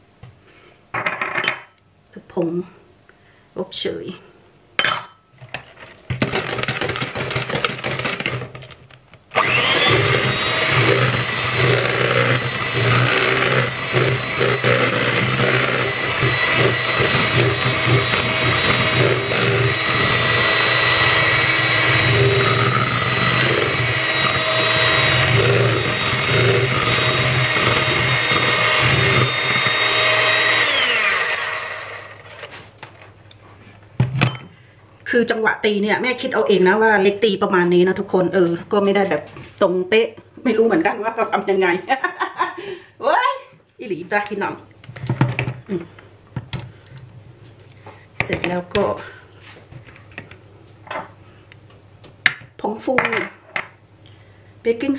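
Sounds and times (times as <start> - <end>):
electric hand mixer whining: 6.2 - 8.4, 9.3 - 32.5.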